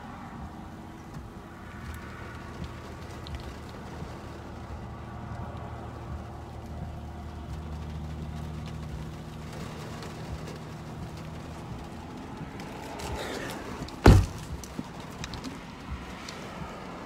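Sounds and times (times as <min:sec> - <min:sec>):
engine humming: 0:00.0 - 0:17.0
windshield wipers sweeping: 0:00.1 - 0:17.0
loud thump: 0:14.0 - 0:14.8.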